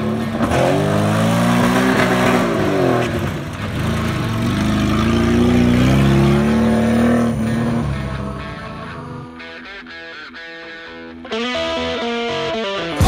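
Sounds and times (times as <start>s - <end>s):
car engine revving hard: 0.0s - 9.2s.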